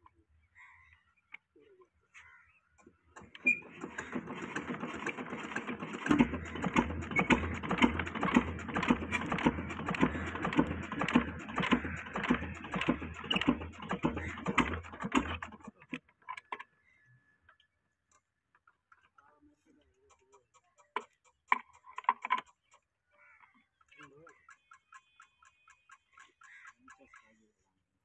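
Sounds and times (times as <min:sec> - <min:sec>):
diesel engine turning over: 0:03.2 - 0:15.8
crank turning whirr: 0:03.2 - 0:16.0.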